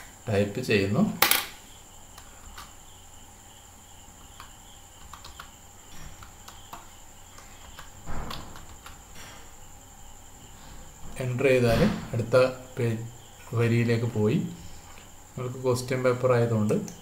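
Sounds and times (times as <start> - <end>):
faint high-pitched whine: 0.0 - 17.0
keyboard keys clicking: 4.2 - 5.6.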